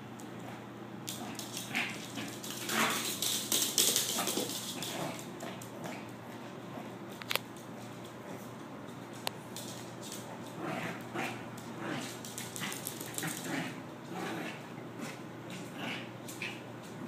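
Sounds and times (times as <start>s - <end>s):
dog scuffling on wooden floor: 1.1s - 13.6s.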